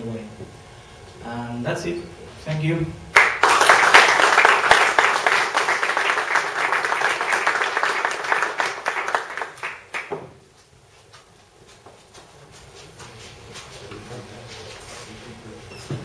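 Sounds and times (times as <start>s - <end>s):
audience applauding: 3.2s - 10.2s.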